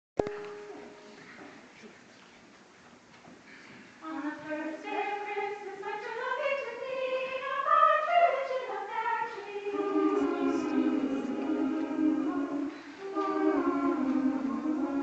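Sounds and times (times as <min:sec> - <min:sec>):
choir singing unaccompanied: 0:04.0 - 0:15.0.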